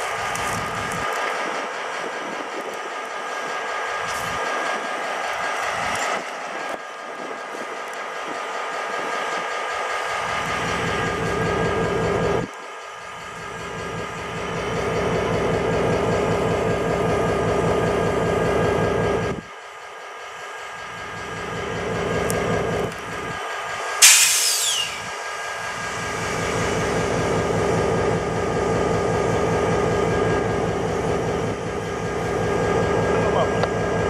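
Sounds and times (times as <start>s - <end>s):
locomotive engine droning: 0.0s - 34.0s
air brakes hissing: 24.0s - 26.2s.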